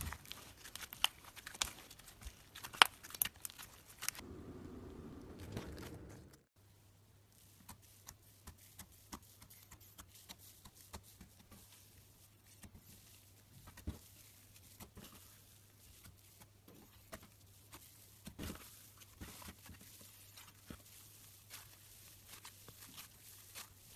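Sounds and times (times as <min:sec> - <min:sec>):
slime crackling and popping: 0:00.0 - 0:04.2.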